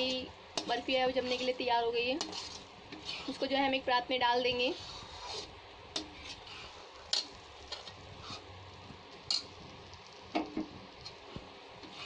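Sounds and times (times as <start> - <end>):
spatula scraping metal pan: 0.0 - 3.6, 4.6 - 8.5
faint steady hiss: 0.0 - 12.0.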